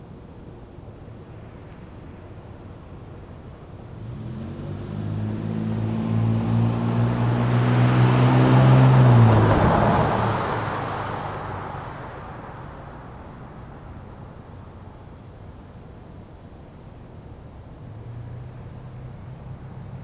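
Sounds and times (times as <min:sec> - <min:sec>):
tyre and road noise: 0:01.1 - 0:15.1
pickup truck driving past: 0:03.9 - 0:14.6.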